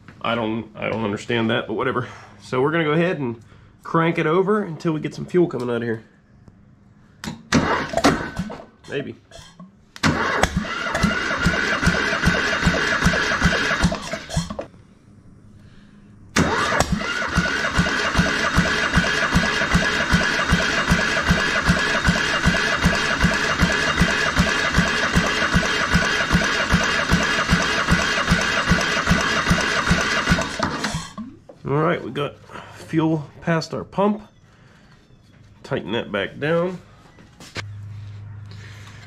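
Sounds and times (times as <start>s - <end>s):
starter cranking diesel engine: 7.6s - 8.6s, 10.0s - 14.6s, 16.3s - 31.2s.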